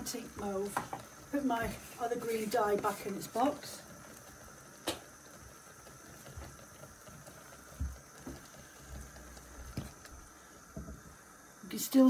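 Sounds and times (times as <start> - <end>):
dye bath simmering and bubbling: 0.0 - 12.0
soft low thumps: 6.2 - 11.2.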